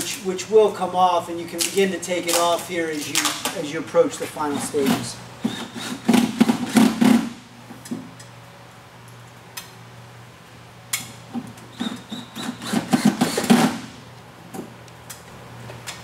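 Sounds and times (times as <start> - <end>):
cordless drill driving screw: 11.8 - 13.7.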